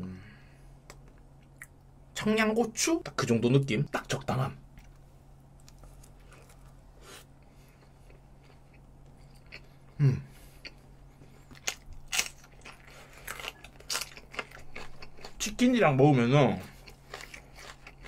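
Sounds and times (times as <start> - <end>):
chewing food: 7.4 - 15.8, 16.5 - 18.0
crunching raw pepper: 11.4 - 15.5.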